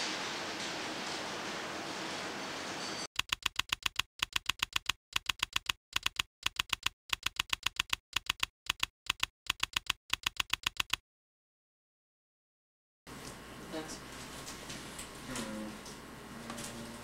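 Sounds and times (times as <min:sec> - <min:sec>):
keyboard typing clicks: 0:03.2 - 0:11.0.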